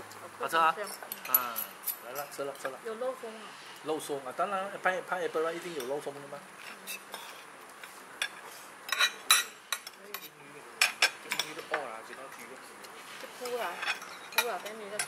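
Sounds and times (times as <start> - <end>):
cutlery clinking on plates: 8.2 - 12.2, 13.4 - 15.0.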